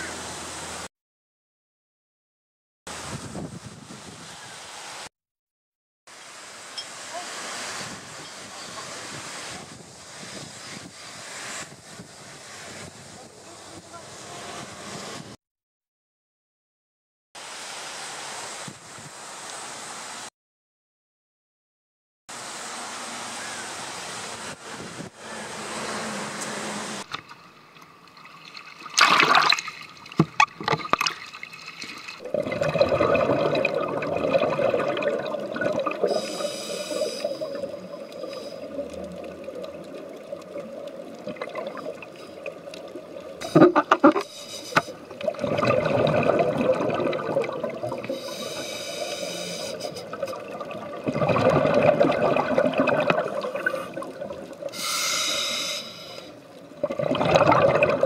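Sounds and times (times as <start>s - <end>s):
water splash: 28.2s - 54.8s, 56.8s - 58.0s
exhaled bubbles gurgling: 32.2s - 54.8s, 56.4s - 58.0s
hiss of inhalation: 36.0s - 38.8s, 43.4s - 45.0s, 48.0s - 50.4s, 54.7s - 56.4s.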